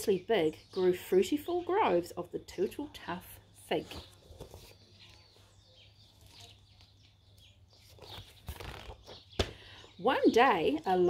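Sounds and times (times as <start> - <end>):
quiet outdoor background: 0.0 - 11.0
paper pages rustling: 3.8 - 9.3.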